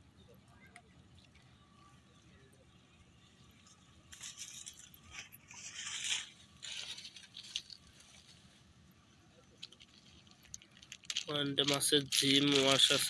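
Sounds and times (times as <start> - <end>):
rustling and crackling: 3.6 - 8.7, 9.4 - 13.0.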